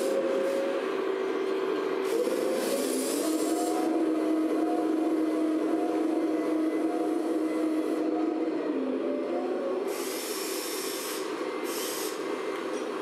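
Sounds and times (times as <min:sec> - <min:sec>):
electric hydraulic pump whine: 0:00.0 - 0:13.0
short hissing bursts: 0:09.9 - 0:12.2.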